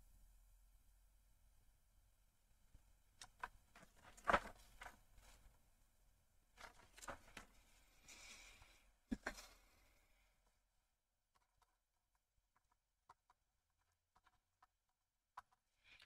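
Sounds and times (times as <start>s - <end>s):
soft rustle: 2.7s - 5.8s, 6.5s - 10.7s
faint clicks and taps: 10.4s - 16.0s.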